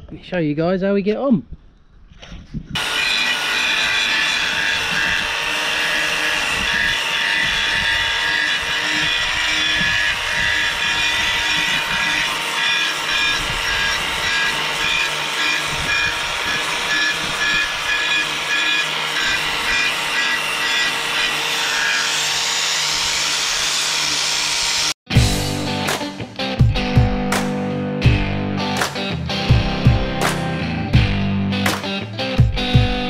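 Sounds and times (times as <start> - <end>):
power sander grinding metal: 2.8 - 25.0.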